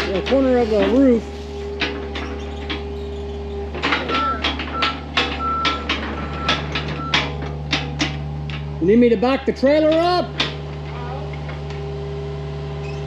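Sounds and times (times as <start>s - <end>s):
heavy equipment engine idling: 0.0s - 13.0s
clicks and knocks: 3.7s - 8.7s.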